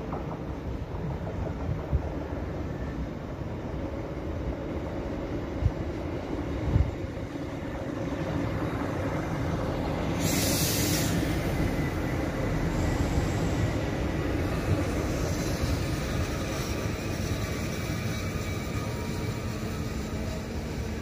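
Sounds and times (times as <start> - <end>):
train wheels rumbling: 0.0 - 21.0
short high hiss: 10.1 - 11.6.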